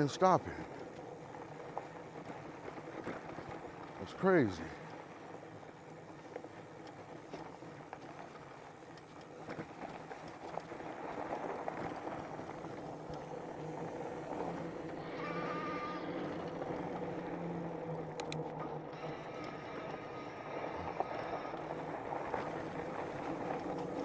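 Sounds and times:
tyres on dirt trail: 0.0 - 24.0
electric motor whine: 11.8 - 24.0
brief high tone: 15.0 - 16.3.

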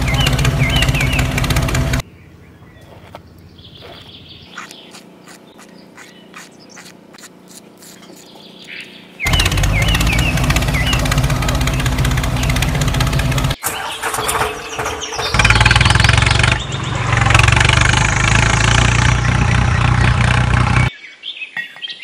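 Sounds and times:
small engine running: 0.0 - 2.0, 9.2 - 20.9
birds chirping: 0.0 - 22.0.

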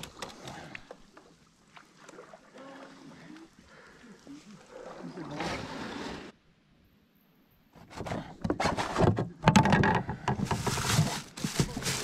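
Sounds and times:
hand rummaging plastic items: 8.5 - 12.0.

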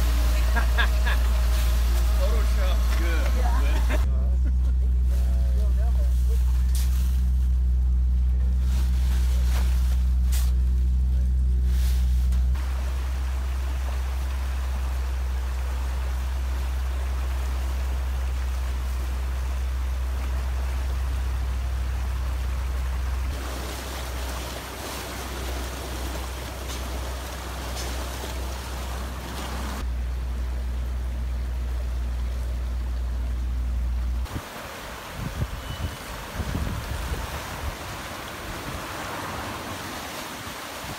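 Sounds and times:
creek water rushing: 0.0 - 4.1, 12.6 - 40.9
low rumble: 0.0 - 34.4.

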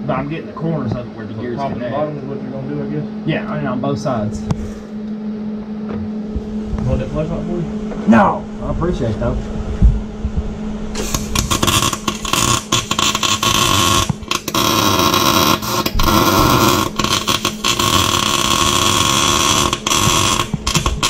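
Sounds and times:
arc welding crackling hiss: 11.0 - 21.0.

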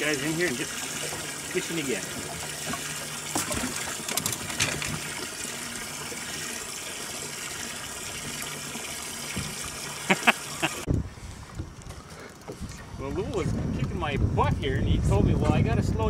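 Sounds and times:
water pouring: 0.0 - 12.7
water pump running: 0.0 - 13.1.

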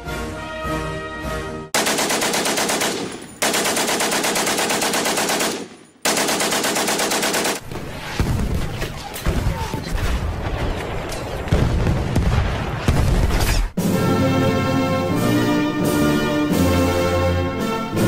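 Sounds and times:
orchestral march: 0.0 - 1.8, 13.8 - 18.0
machine gun bursts: 1.8 - 7.6
artillery booms: 7.6 - 13.8.

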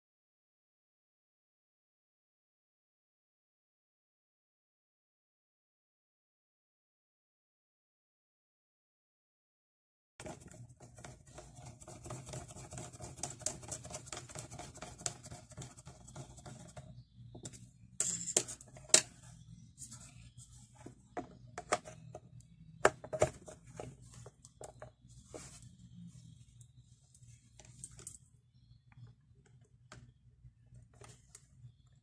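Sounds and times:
faint low hum: 10.2 - 32.0.

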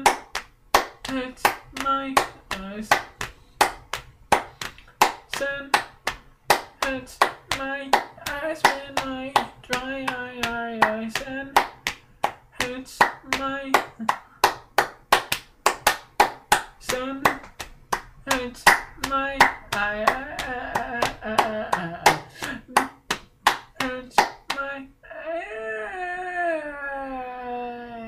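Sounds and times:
hands clapping a steady beat: 0.0 - 24.8
person singing long held notes: 18.3 - 22.8.

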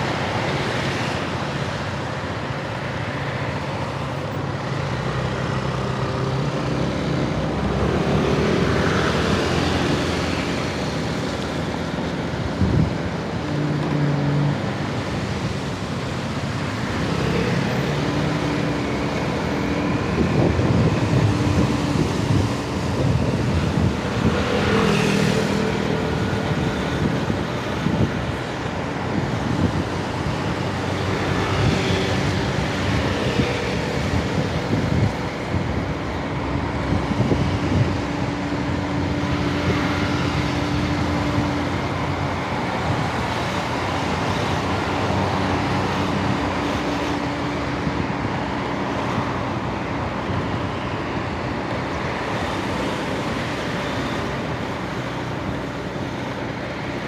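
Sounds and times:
passing scooters and cars: 0.0 - 57.0
road noise: 0.0 - 57.0.

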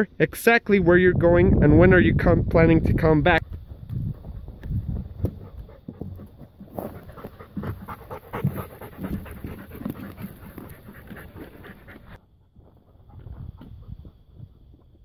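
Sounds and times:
dog panting: 3.4 - 14.9.

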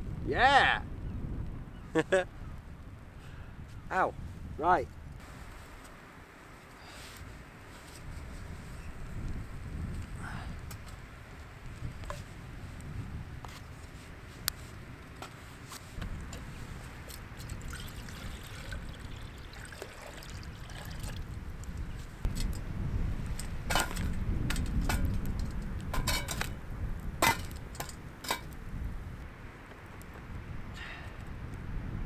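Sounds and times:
wind rumbling on microphone: 0.0 - 32.0.

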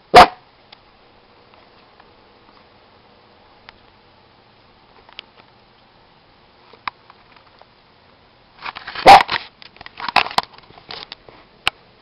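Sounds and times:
dog barking: 0.1 - 0.4, 9.0 - 9.3.

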